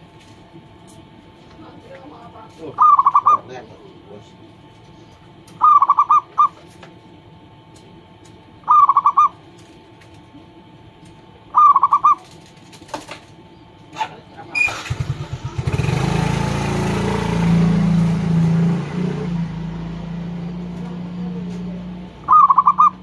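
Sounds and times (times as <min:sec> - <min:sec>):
dove cooing song: 0:02.8 - 0:03.6, 0:05.0 - 0:06.7, 0:08.6 - 0:09.5, 0:11.4 - 0:12.5, 0:20.4 - 0:23.0.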